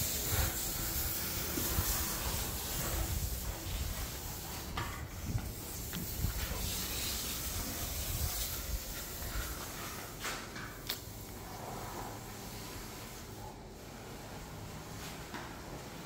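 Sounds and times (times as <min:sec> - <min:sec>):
wind noise on microphone: 0:00.0 - 0:09.6.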